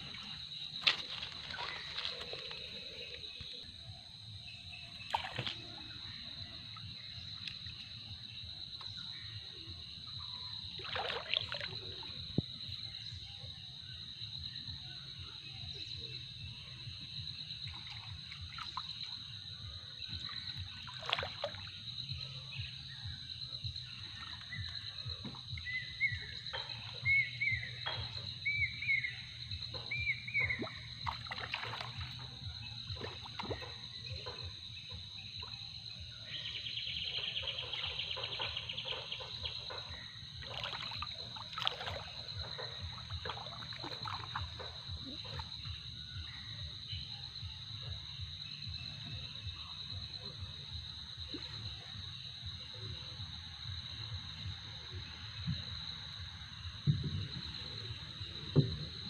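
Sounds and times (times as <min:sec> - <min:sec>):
water splashing and dripping: 0:00.0 - 0:03.6, 0:05.0 - 0:08.1, 0:10.6 - 0:12.5, 0:17.6 - 0:19.3, 0:20.1 - 0:22.3, 0:29.6 - 0:35.6, 0:37.7 - 0:45.8.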